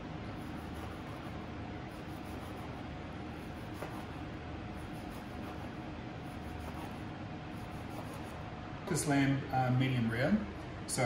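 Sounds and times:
room noise hum and hiss: 0.0 - 11.0
knife slicing meat on plastic board: 3.4 - 4.2.

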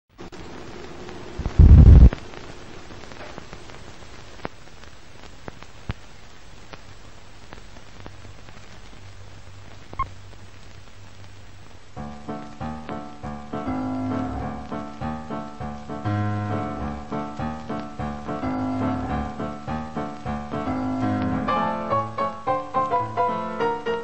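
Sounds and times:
film hiss with crackles and pops: 0.1 - 24.0
loud low burst: 1.4 - 2.2.

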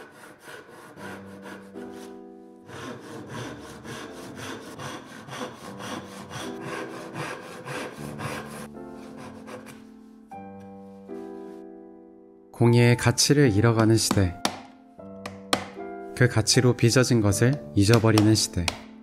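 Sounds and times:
handsaw cutting wood: 0.0 - 9.8.

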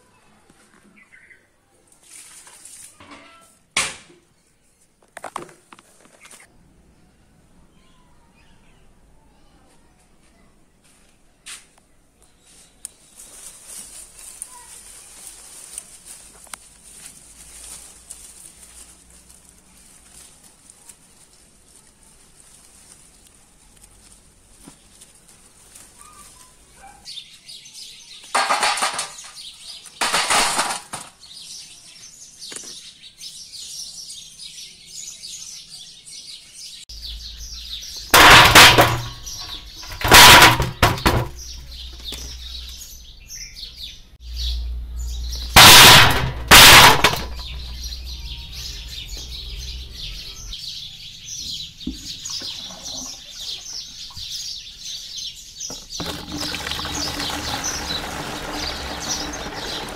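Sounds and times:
birds chirping: 0.8 - 1.6, 11.8 - 59.9
branches rustling: 12.4 - 27.1, 36.9 - 43.6, 44.2 - 50.6, 55.9 - 59.9
fruit clattering into a steel bowl: 28.3 - 31.2, 37.9 - 42.6, 45.5 - 48.2, 55.7 - 59.9.

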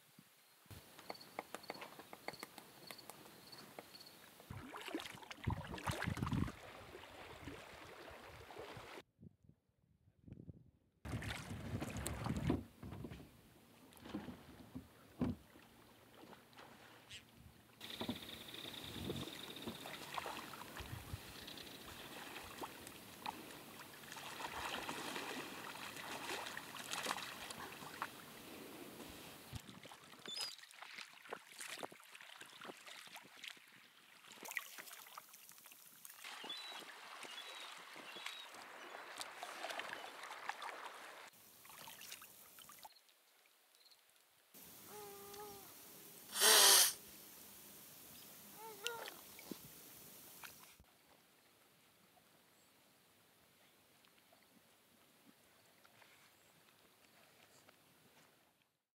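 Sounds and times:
water lapping against hull: 4.5 - 9.0, 11.1 - 12.7, 13.9 - 42.9
sharp water slaps: 24.1 - 28.1.

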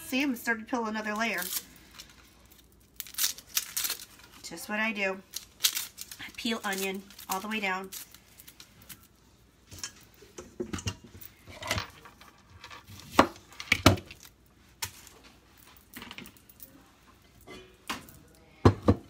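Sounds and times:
utensils and dishes clinking: 15.9 - 19.0.

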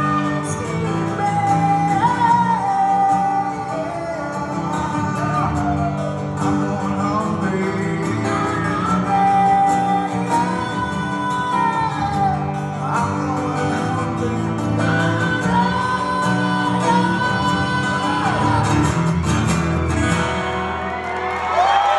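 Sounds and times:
person singing long notes: 0.0 - 19.1
strummed acoustic guitars: 0.0 - 21.5.

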